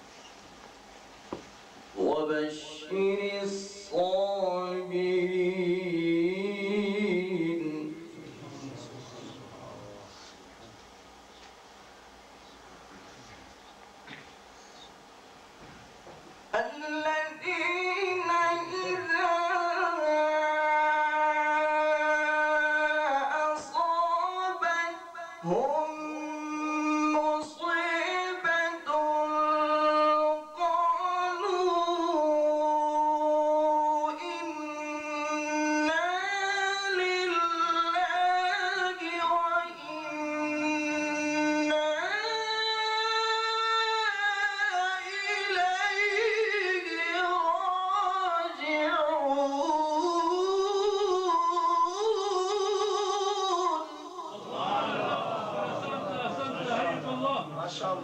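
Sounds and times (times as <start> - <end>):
man reciting melodically: 2.0 - 10.4, 16.5 - 58.0.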